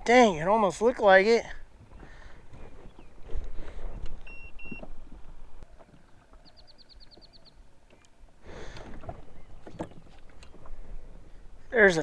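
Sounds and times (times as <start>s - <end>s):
electronic beeps: 4.2s - 4.9s
bird chirping trill: 5.8s - 7.6s.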